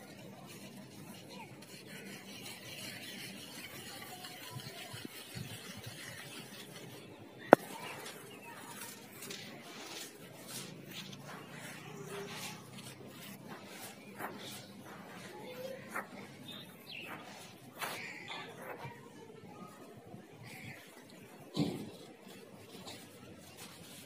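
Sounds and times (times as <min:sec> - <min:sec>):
sand crumbling and rustling: 0:02.9 - 0:19.8.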